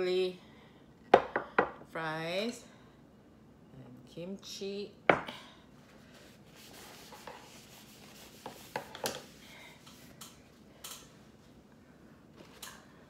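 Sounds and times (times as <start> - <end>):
rubbing and rustling: 5.8 - 10.2.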